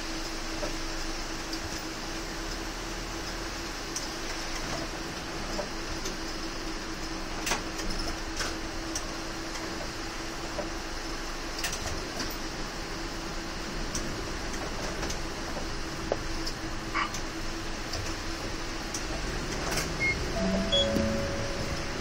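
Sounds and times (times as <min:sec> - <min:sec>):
bus engine and tyre noise: 0:00.0 - 0:22.0.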